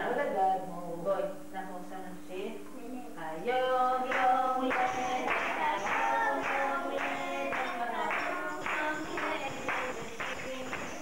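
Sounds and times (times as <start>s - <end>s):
person singing children's song: 2.8s - 11.0s
hand clapping: 4.1s - 11.0s.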